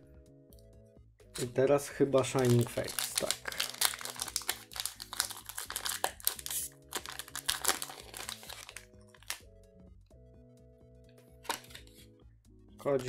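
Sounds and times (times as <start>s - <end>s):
foil wrapper crinkling and tearing: 2.2s - 9.4s.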